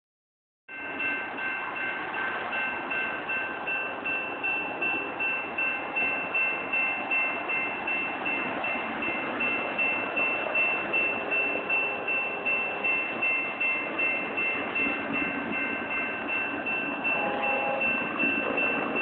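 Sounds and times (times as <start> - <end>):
railroad bell ringing: 0.7 - 19.0.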